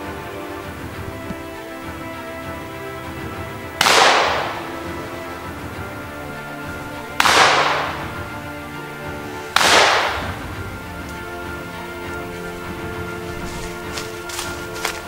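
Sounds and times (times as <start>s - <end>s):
background music: 0.0s - 15.0s
sharp bangs: 3.7s - 8.6s, 9.5s - 10.8s.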